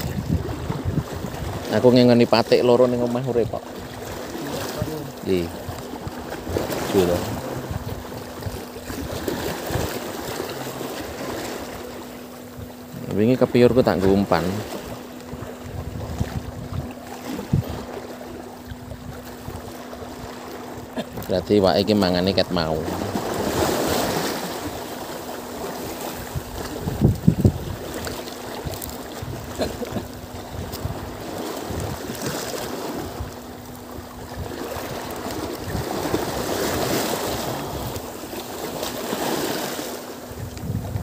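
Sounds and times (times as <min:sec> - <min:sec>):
wind noise: 0:00.0 - 0:01.7, 0:15.3 - 0:17.9, 0:26.2 - 0:32.4, 0:34.0 - 0:38.0, 0:40.3 - 0:41.0
wind on microphone: 0:00.0 - 0:21.4, 0:25.7 - 0:39.6, 0:40.2 - 0:41.0
choppy water lapping: 0:00.0 - 0:41.0.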